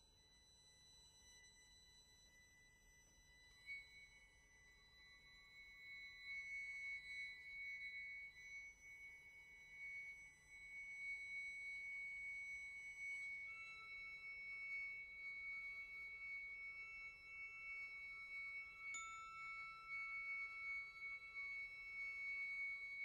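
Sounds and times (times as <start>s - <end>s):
lower sustained tone: 0.0s - 23.0s
flute sustained high notes: 5.2s - 23.0s.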